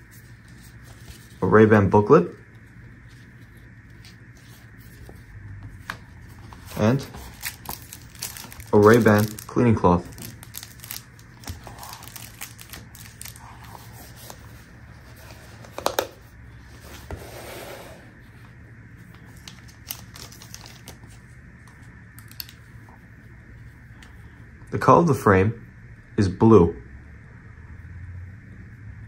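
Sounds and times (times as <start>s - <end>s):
soft rustle: 0.0s - 1.5s
plastic sleeve crinkling: 2.5s - 16.4s, 19.1s - 21.3s, 22.2s - 22.6s.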